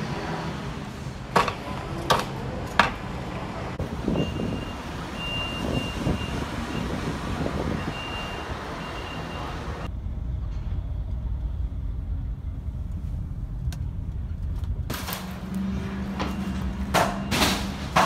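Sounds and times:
reversing alarm beeping: 4.1s - 7.0s, 7.7s - 9.9s.

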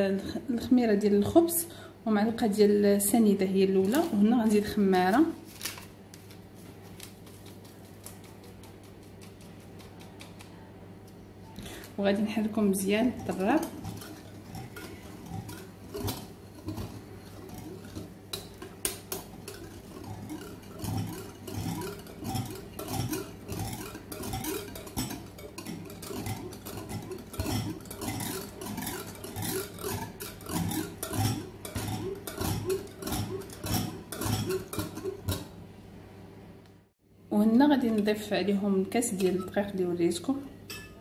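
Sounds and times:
whisk clicking against glass bowl: 7.4s - 10.5s, 13.0s - 35.5s.

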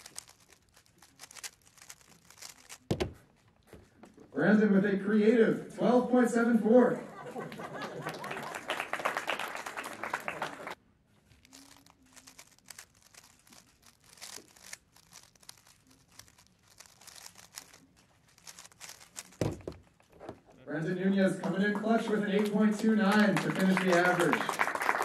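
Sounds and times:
puzzle cube clicking while turned: 0.0s - 3.7s, 11.3s - 20.6s
audience applause: 7.1s - 10.8s, 21.2s - 25.0s.

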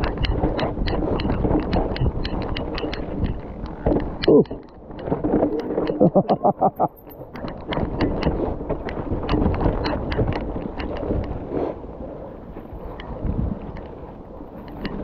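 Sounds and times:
bike rattling over rough trail: 0.0s - 15.0s
wind rumbling on microphone: 0.0s - 15.0s.

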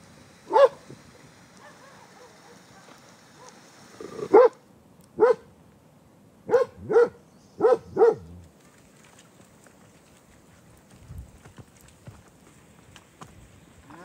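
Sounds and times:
dog barking: 0.5s - 0.8s, 1.6s - 3.6s, 4.2s - 4.6s, 5.2s - 5.5s, 6.5s - 8.3s.

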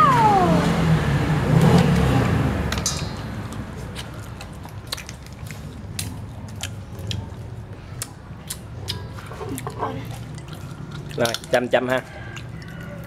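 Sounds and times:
crab shell cracking: 10.2s - 13.0s.

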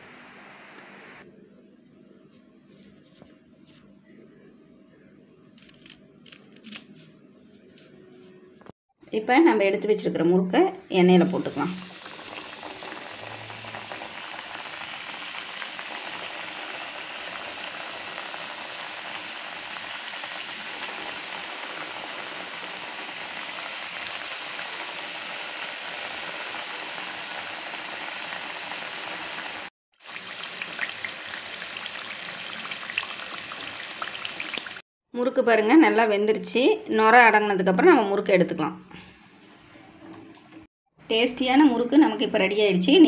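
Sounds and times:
dough deep-frying in oil: 11.4s - 34.8s.

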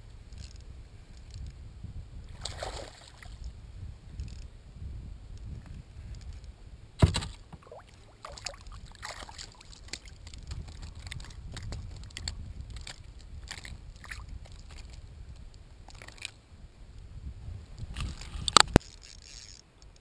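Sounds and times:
low steady rumble: 0.0s - 18.8s
fish splashing: 7.1s - 12.2s.

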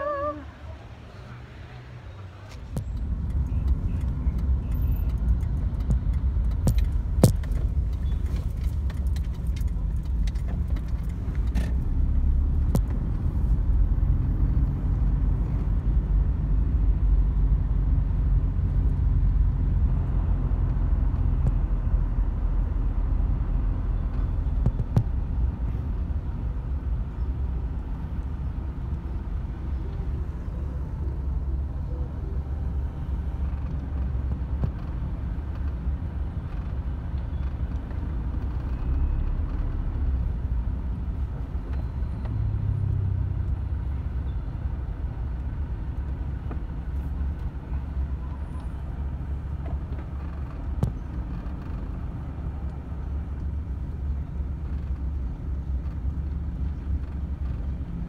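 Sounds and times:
car engine and road rumble: 0.0s - 58.0s
sharp clicks and rattles: 2.8s - 12.0s.

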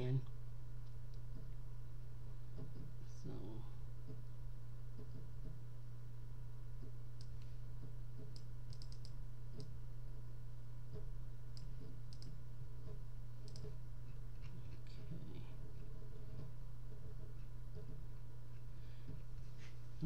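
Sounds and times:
steady low hum: 0.0s - 20.0s
computer mouse clicking: 6.8s - 9.8s, 10.9s - 13.8s.

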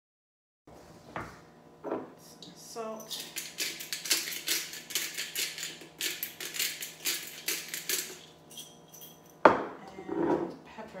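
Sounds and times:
salt grinder grinding: 3.1s - 8.7s.

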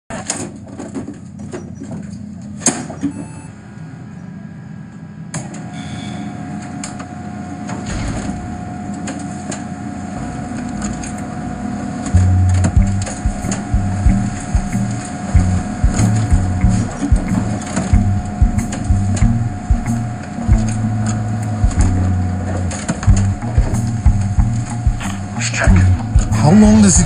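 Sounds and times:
printer whirring: 3.5s - 27.0s
constant electronic tone: 9.8s - 27.0s
loud low thump: 12.2s - 20.8s, 21.6s - 22.2s, 23.0s - 27.0s
keyboard keys tapping: 12.2s - 22.1s.

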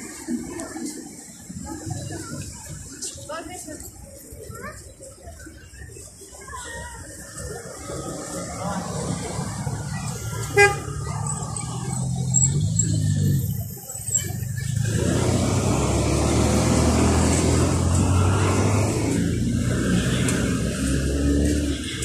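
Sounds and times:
car engines running: 7.3s - 22.0s
car passing: 14.6s - 22.0s.

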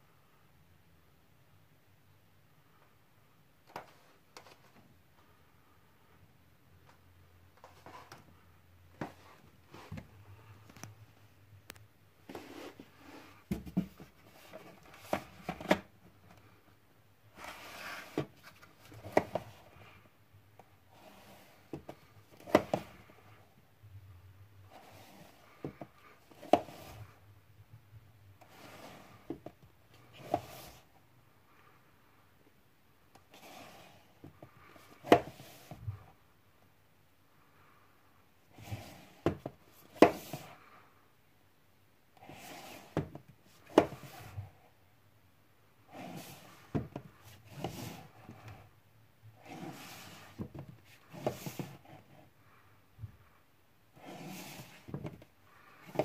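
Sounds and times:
plastic cases scraping on shelf: 12.3s - 15.9s, 17.3s - 19.9s, 20.9s - 23.3s, 24.6s - 27.1s, 28.4s - 29.4s, 30.0s - 30.9s, 33.3s - 35.9s, 38.5s - 40.6s, 42.2s - 44.6s, 45.8s - 48.6s, 49.3s - 52.2s, 53.9s - 56.0s
plastic cases scraping together: 12.3s - 16.4s, 45.8s - 48.6s, 49.4s - 52.2s, 54.0s - 56.0s.

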